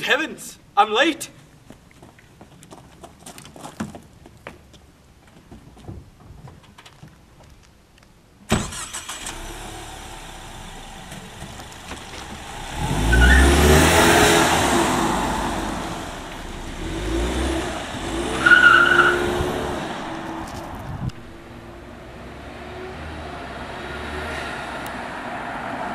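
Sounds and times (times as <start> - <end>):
car engine revving: 8.7 - 25.7.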